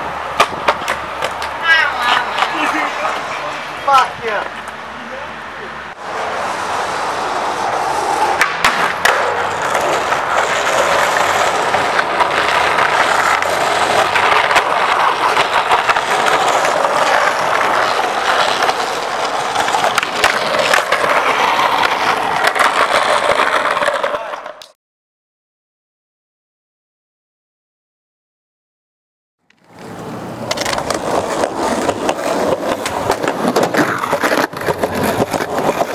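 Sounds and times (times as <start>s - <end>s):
skateboard popping and landing: 0.0s - 3.7s, 6.0s - 24.8s, 29.5s - 35.9s
skateboard wheels rolling on asphalt: 0.0s - 24.8s, 29.4s - 35.9s.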